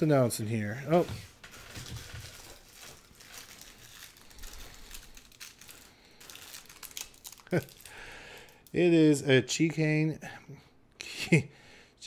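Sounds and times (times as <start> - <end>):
packaging crinkling: 0.9 - 8.8.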